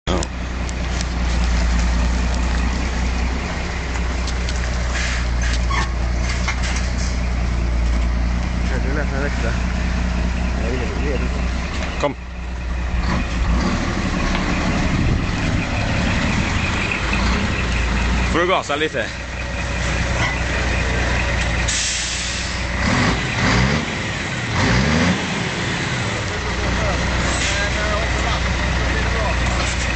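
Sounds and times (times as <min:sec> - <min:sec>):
diesel truck engine idling: 0:00.1 - 0:29.9
engine revving in blips: 0:12.9 - 0:18.4, 0:22.6 - 0:25.5.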